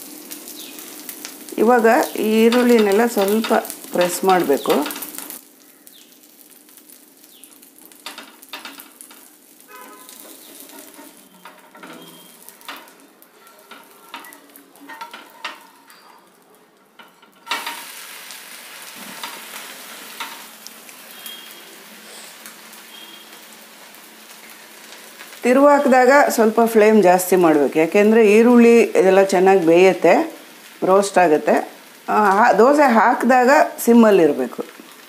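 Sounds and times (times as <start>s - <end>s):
pancake sizzling on griddle: 0.0s - 33.8s, 34.7s - 35.0s
metal spatula scraping and tapping: 8.0s - 17.9s, 20.2s - 20.5s.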